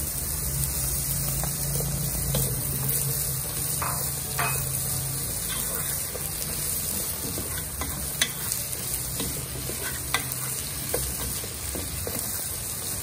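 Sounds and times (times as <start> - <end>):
potatoes sizzling in oil: 0.0 - 13.0.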